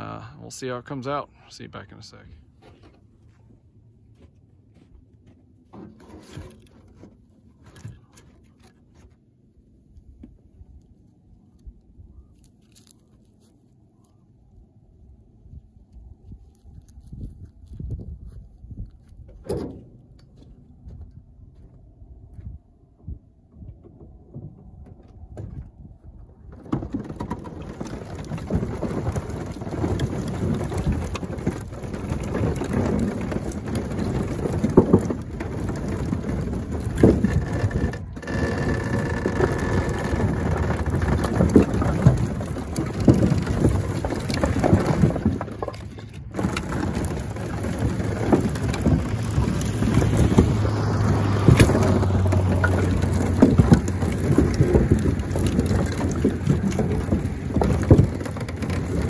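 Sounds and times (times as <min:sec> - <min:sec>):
firewood clattering and tumbling: 0:02.4 - 0:59.0
wood knocking on wood: 0:26.6 - 0:59.0.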